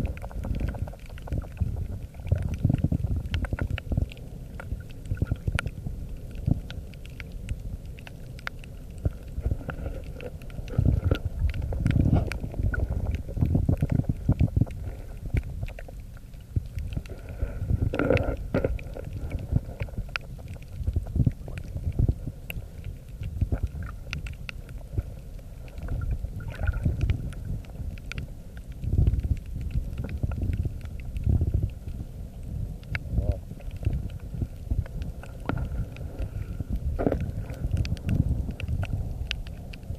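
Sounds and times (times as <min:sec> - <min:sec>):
water rumbling and sloshing: 0:00.0 - 0:39.9.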